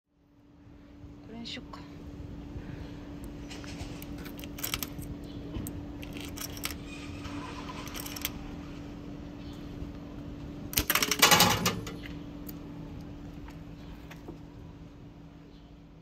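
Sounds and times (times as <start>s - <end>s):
steady low hum: 0.1s - 16.0s
vending machine rattling clatter: 3.5s - 5.2s, 6.0s - 8.5s, 10.8s - 12.1s
vending machine clicks: 10.7s - 12.1s.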